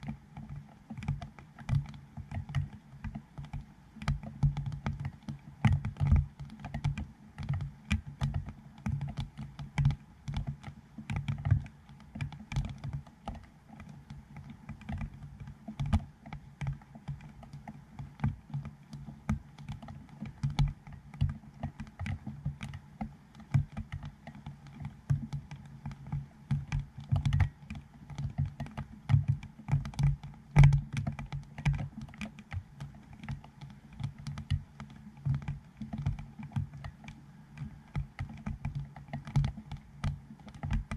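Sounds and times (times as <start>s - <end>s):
rain tapping on camera housing: 0.0s - 40.9s.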